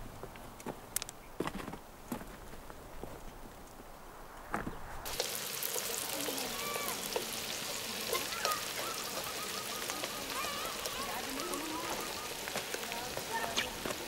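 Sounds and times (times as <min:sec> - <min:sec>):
food sizzling in a wok: 0:05.0 - 0:14.0.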